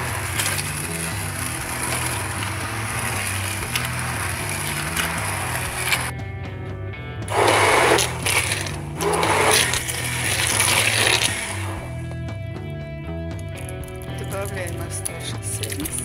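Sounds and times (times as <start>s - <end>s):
immersion blender running: 0.0s - 6.1s, 7.3s - 12.0s
background music with bass line: 0.0s - 16.0s.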